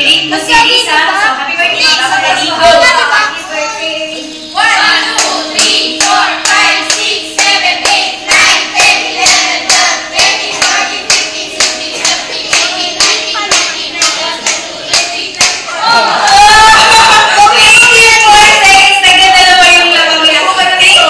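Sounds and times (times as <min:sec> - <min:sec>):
voices singing along: 0:00.0 - 0:21.0
group clapping in rhythm: 0:04.6 - 0:19.9.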